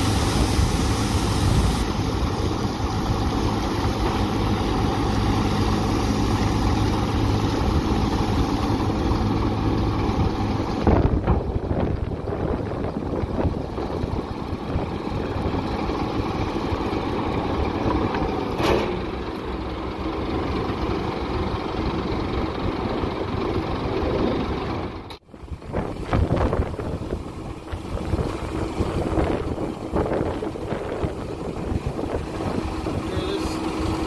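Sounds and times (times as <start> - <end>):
garbage truck diesel engine running: 0.0 - 34.0.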